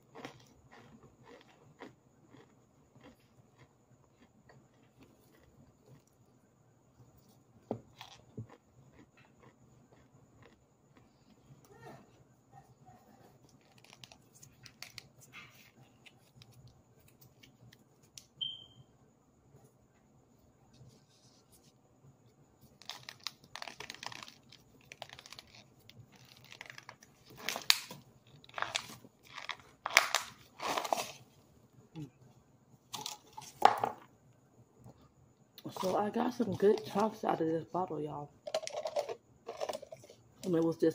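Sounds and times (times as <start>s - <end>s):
plastic bottle crinkling: 22.8s - 31.2s, 38.4s - 40.1s.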